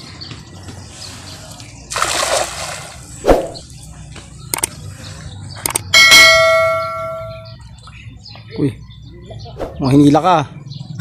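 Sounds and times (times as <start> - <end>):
cast net splashing on water: 1.9 - 3.5
bright ringing bell chime: 5.9 - 7.5.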